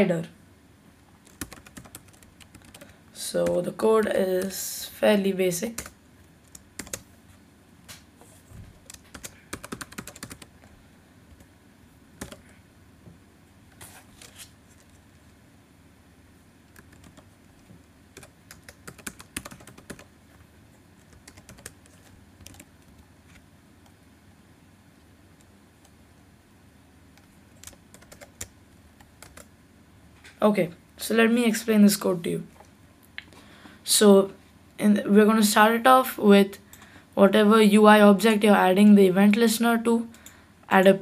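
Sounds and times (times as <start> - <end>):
typing on computer keyboard: 1.2 - 3.6, 5.8 - 7.0, 8.8 - 10.5, 12.2 - 12.4, 16.7 - 17.3, 18.2 - 20.1, 21.0 - 23.0, 27.6 - 29.5.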